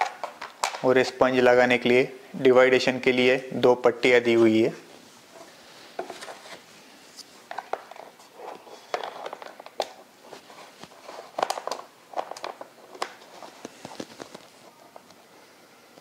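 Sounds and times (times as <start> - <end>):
hard plastic clicking and scraping: 7.5 - 10.0, 10.7 - 15.2.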